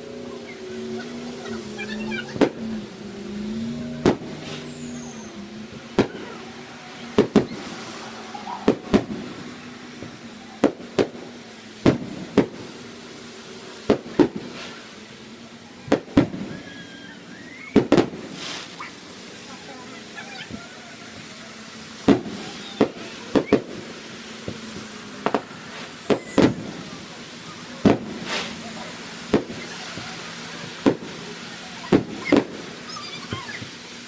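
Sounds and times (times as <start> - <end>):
fireworks bursting with bangs: 0.0 - 34.0.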